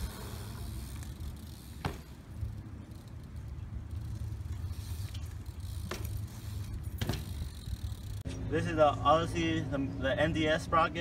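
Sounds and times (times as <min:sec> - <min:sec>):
bike rolling over concrete: 0:00.0 - 0:08.3.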